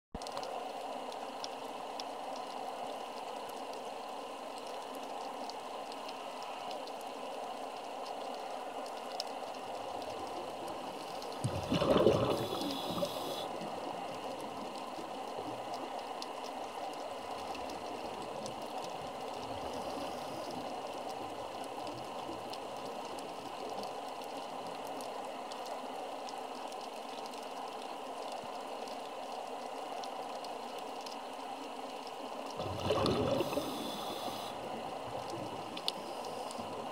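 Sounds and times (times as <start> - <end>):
faint hum: 9.6 - 18.1, 32.6 - 36.9
underwater hiss: 10.8 - 14.0, 19.5 - 20.8, 32.6 - 36.9
gush of bubbles: 11.3 - 13.5, 32.5 - 34.5.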